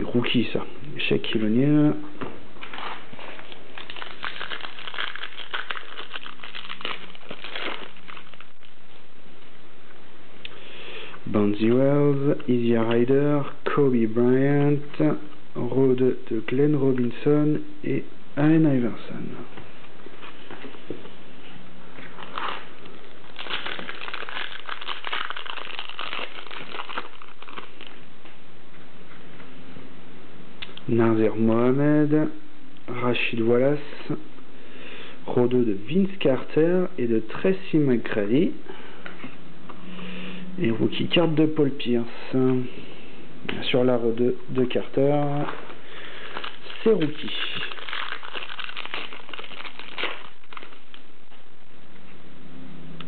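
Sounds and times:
shiny wrapper crinkling: 2.6 - 8.8, 22.1 - 28.1, 44.6 - 51.4.

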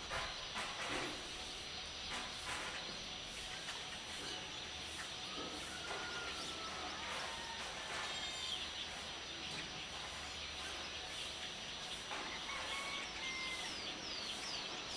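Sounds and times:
birds chirping and twittering: 0.0 - 14.9
outdoor ambience: 0.0 - 14.9.

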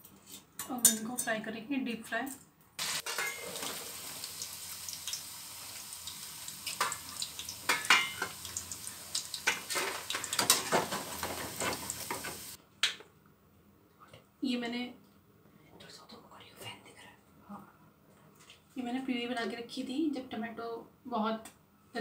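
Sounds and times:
deep-frying sizzle: 2.8 - 12.6
spoon scraping and clinking pan: 3.0 - 3.8, 7.7 - 8.4.

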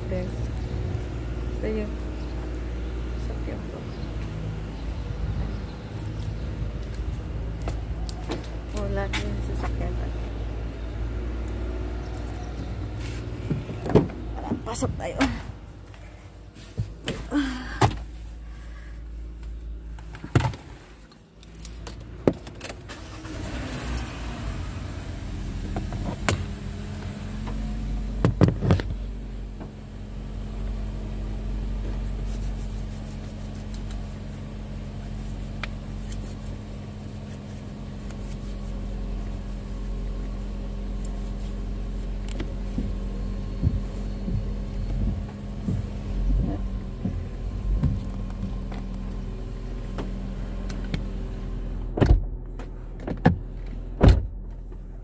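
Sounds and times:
car engine starting and idling: 0.0 - 55.0
clicks and thumps inside car: 13.4 - 15.6, 27.4 - 29.8, 42.3 - 49.0, 51.9 - 55.0.

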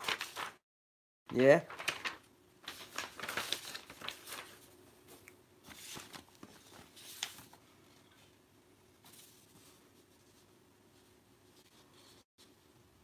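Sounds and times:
paper rustling and crinkling: 0.0 - 0.6, 1.3 - 8.4, 9.0 - 10.5.

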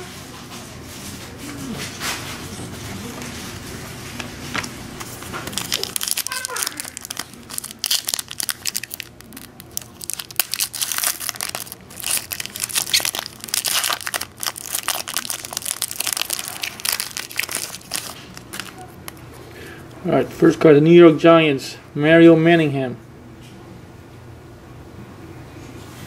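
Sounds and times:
foil wrapper crinkling and tearing: 5.0 - 19.4.

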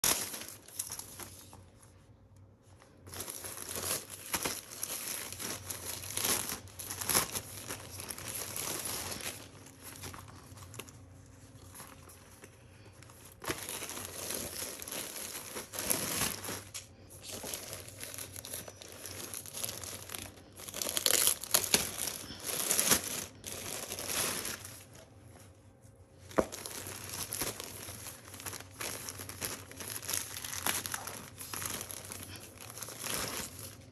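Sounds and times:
plastic bags crinkling: 0.0 - 33.9
plastic tearing: 13.3 - 24.9, 26.3 - 33.9.

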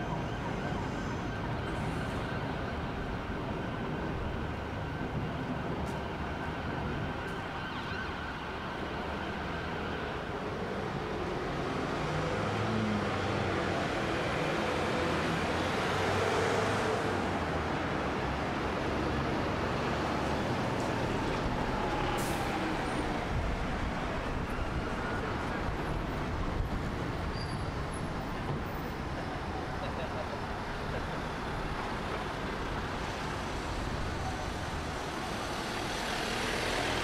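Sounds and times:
bus passing: 9.4 - 37.0
cars passing: 11.5 - 37.0.

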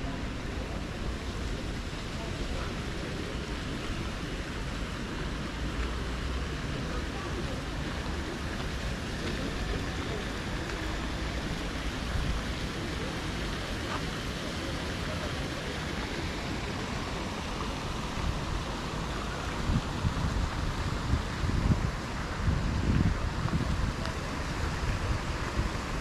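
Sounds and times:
street ambience rushing noise: 0.0 - 26.0.

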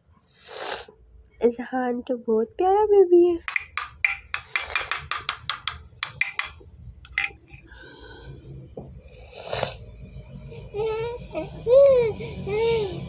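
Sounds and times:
metal spoon clicking: 3.5 - 7.4.

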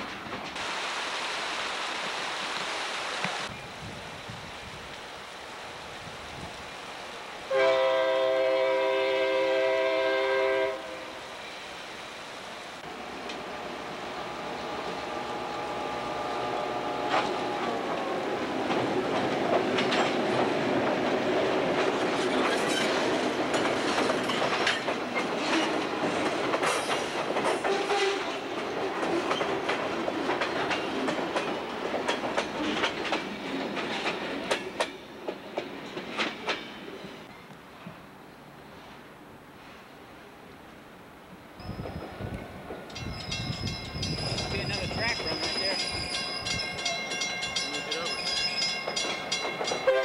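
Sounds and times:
train rumbling: 0.0 - 0.7, 3.4 - 50.0
train horn: 7.5 - 11.2, 14.3 - 17.6
wheels clacking over rail joints: 16.3 - 37.4, 41.7 - 50.0.

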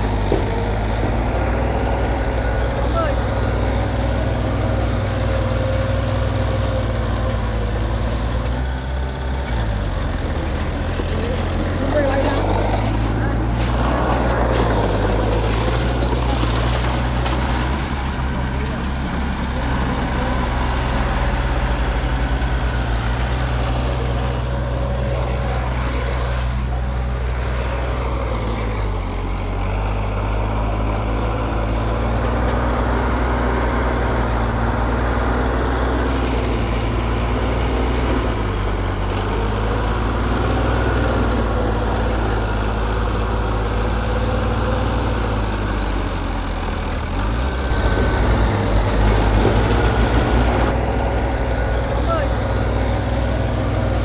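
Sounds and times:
heavy diesel engine running: 0.0 - 54.0.

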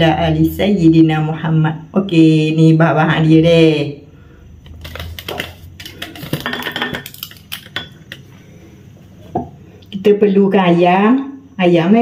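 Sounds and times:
dishes clinking on counter: 4.8 - 8.2.

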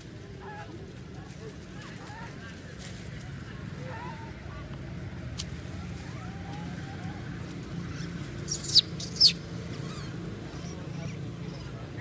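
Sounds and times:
baby monkey squealing: 7.9 - 11.7.

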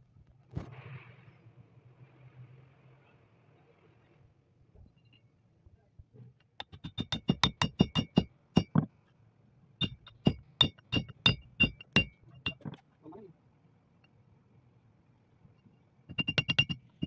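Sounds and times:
hammer striking steel: 9.8 - 12.8, 16.1 - 17.0.

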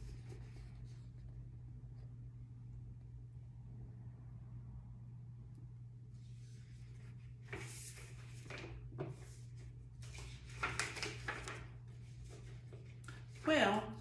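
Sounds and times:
magazine pages rustling: 0.0 - 1.3, 6.2 - 13.4
steady low hum: 0.0 - 14.0.

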